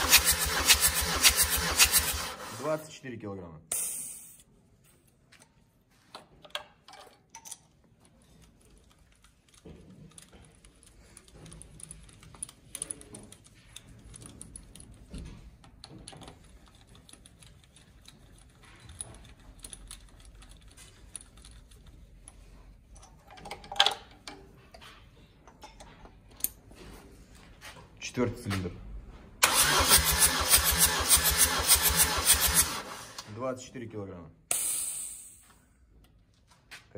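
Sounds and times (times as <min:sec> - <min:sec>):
small metal clicks and clinks: 0:06.4 - 0:24.5.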